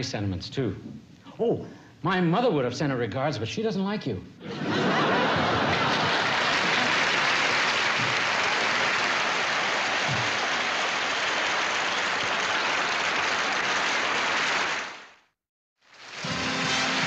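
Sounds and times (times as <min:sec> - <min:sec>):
audience applauding: 0:05.2 - 0:15.2, 0:15.9 - 0:17.0.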